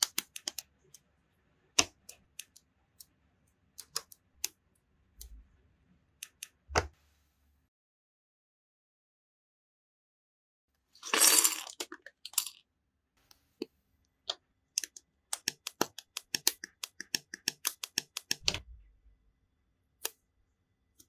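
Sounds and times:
plastic pieces rattling: 11.0 - 12.6.

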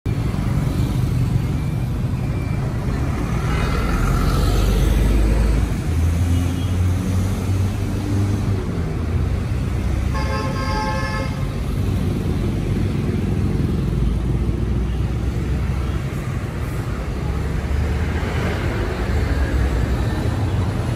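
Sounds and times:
street traffic passing: 0.1 - 20.9
vehicle horn blast: 10.1 - 11.4.

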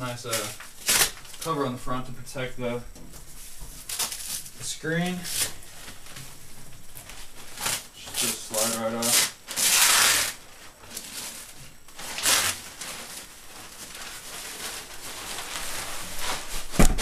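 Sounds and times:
plastic cover rustling swish: 3.1 - 17.0
thump: 16.7 - 17.0.

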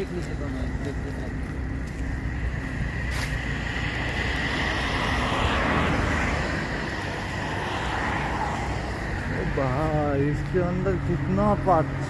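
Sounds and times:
highway traffic hum and hiss: 0.0 - 12.0
vehicle passing: 0.0 - 12.0.

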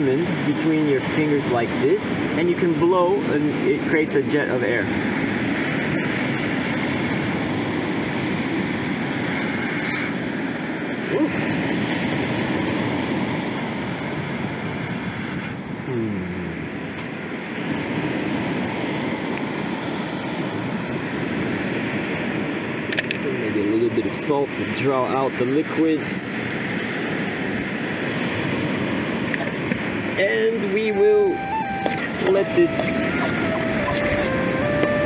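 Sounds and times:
person blowing hard: 30.9 - 35.0.

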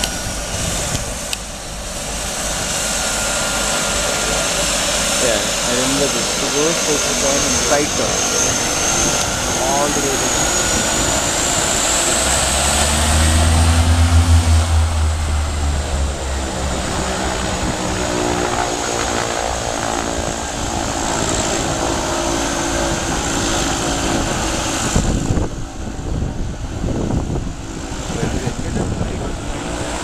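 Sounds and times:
high turbine whine: 0.0 - 30.0
propeller drone: 0.0 - 30.0.

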